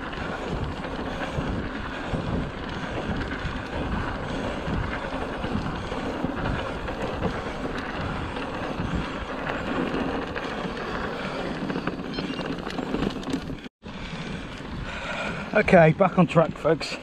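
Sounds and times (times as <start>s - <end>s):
wind on microphone: 0.0s - 16.6s
bike rattles: 0.0s - 17.0s.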